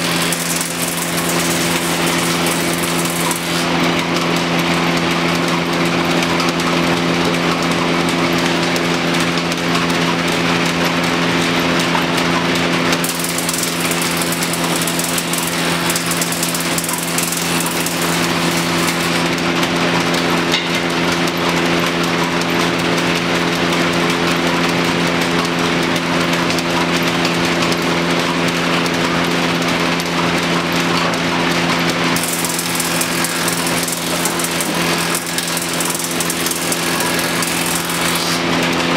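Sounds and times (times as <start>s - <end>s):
planer motor humming: 0.0s - 20.2s, 29.5s - 38.9s
planer cutting wood: 0.0s - 38.9s.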